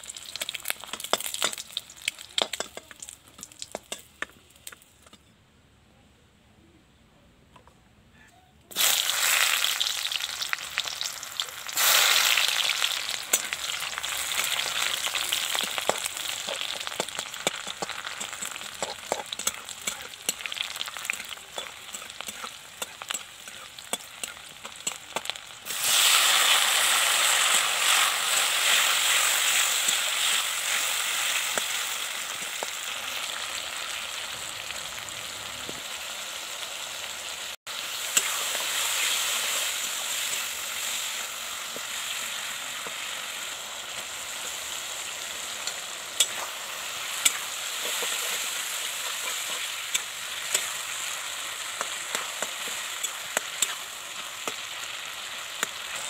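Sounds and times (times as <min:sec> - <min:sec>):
onions sizzling in hot oil: 0:00.0 - 0:04.8, 0:08.7 - 0:56.0
metal spatula scraping and tapping: 0:02.4 - 0:05.3, 0:15.6 - 0:25.4, 0:45.6 - 0:46.5, 0:47.2 - 0:50.8, 0:51.8 - 0:54.6.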